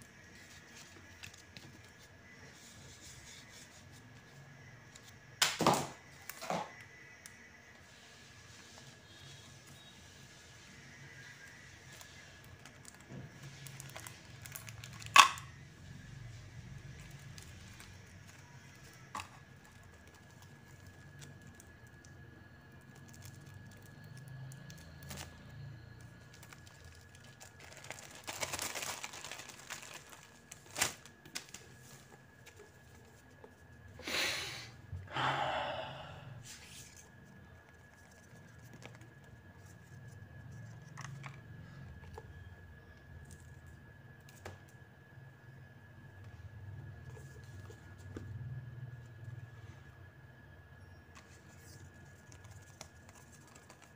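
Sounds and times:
plastic shrink-wrap tearing and crinkling: 11.9 - 15.4, 26.3 - 32.0.

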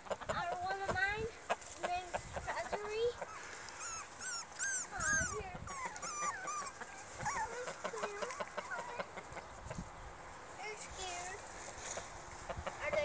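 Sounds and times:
puppies whimpering and yipping: 2.4 - 9.4.

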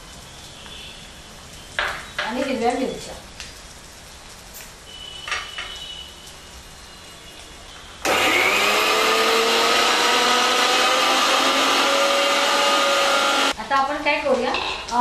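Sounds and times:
mixer grinder motor whine: 8.0 - 13.6.

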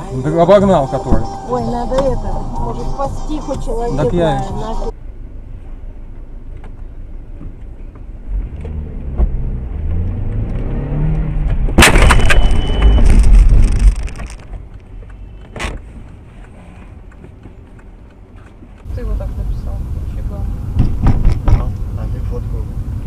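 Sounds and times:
engine and road rumble: 0.0 - 23.0
vehicle crash: 11.5 - 14.6
sharp bang: 11.8 - 13.9
loud crunching: 11.8 - 14.9.

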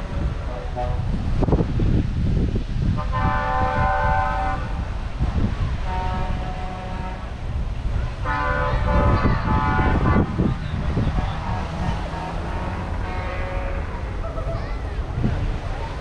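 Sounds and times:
truck air horn blasts: 0.4 - 1.3, 2.9 - 7.5, 8.1 - 14.2.

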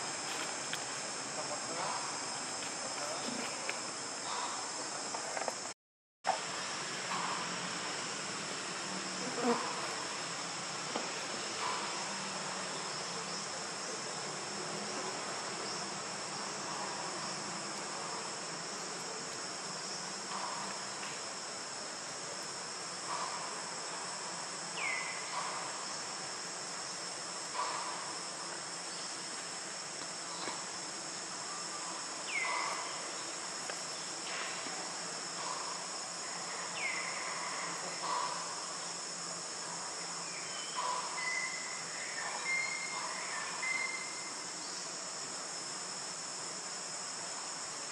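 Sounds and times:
forest insects buzzing: 0.0 - 47.9.

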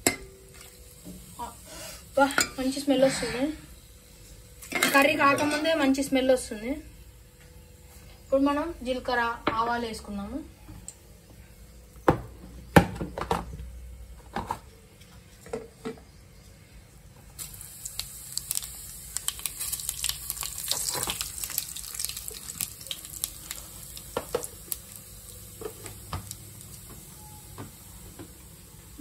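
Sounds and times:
seeds sizzling in hot oil: 0.0 - 9.3, 17.4 - 29.0.

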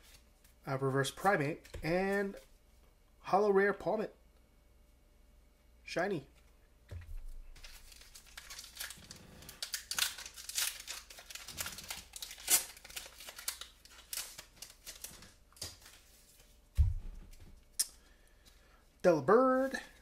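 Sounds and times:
foil wrapper tearing and crinkling: 7.6 - 16.0
dull low thump: 16.8 - 17.4.

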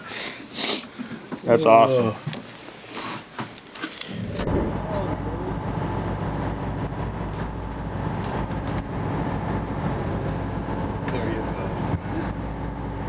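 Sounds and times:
boat engine rumbling: 4.1 - 13.0.

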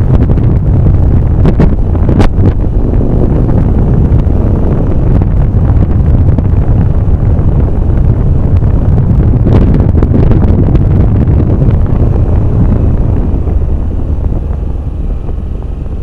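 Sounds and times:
low rumble: 0.0 - 16.0
wind buffeting microphone: 0.0 - 16.0.

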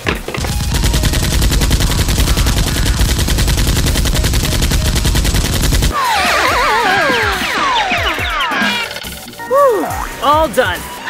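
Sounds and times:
rapid automatic gunfire: 0.4 - 8.4.

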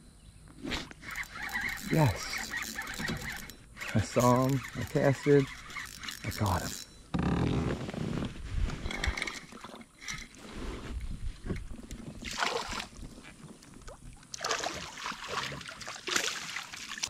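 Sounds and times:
water splashing and sloshing: 8.8 - 17.0.

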